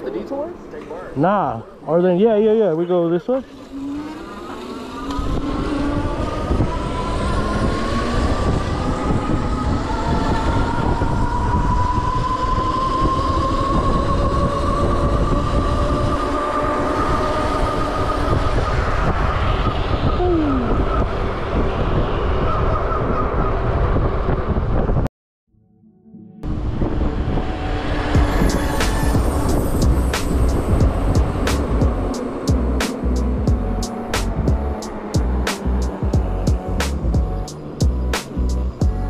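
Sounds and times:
electric motor whining: 3.4 - 12.0
wind rumble on microphone: 3.4 - 25.1, 26.4 - 39.0.

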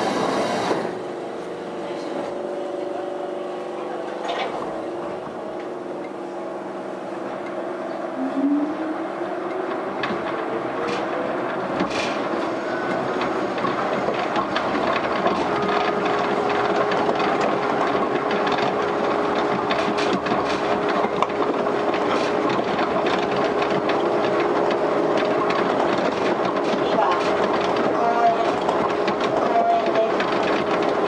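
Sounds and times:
steady whine: 0.0 - 19.6.

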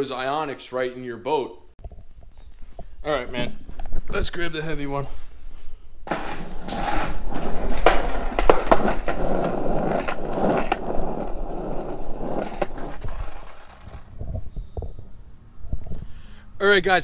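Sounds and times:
skateboard wheels rolling: 6.0 - 15.1
skateboard clacks: 6.1 - 14.1.

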